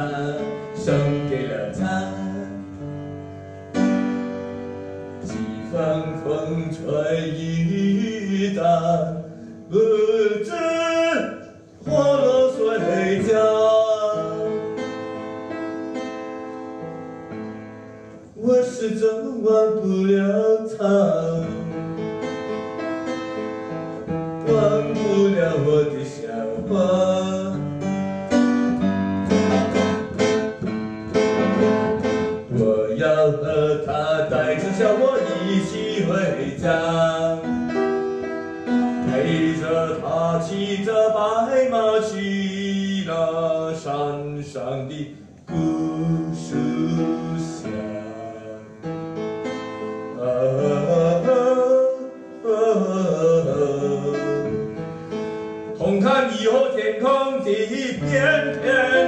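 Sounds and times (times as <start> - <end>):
man singing: 0.0 - 3.0, 5.2 - 15.0, 18.3 - 22.0, 24.4 - 28.0, 31.4 - 37.9, 38.6 - 48.9, 50.1 - 54.8, 55.8 - 59.0
piano: 0.0 - 59.0.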